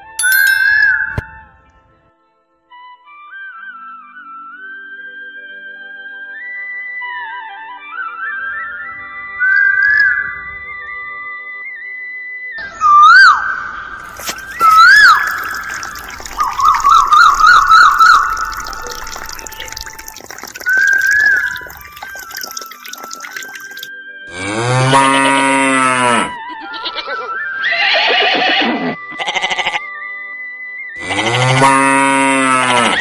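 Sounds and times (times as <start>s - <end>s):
warbling whistle-like tone: 0.0s - 1.4s, 12.8s - 23.9s
trickling water: 14.0s - 23.9s
cow mooing: 24.3s - 26.4s, 31.0s - 33.0s.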